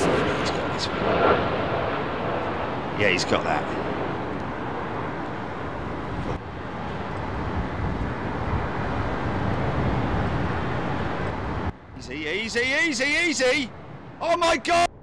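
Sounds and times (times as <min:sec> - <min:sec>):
jet engines on landing: 0:00.0 - 0:14.9.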